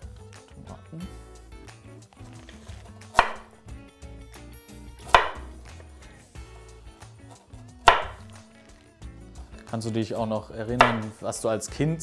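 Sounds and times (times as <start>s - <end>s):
soft background music: 0.0s - 12.0s
knife chopping on cutting board: 3.0s - 3.6s, 5.0s - 5.7s, 7.9s - 8.4s, 10.7s - 11.2s.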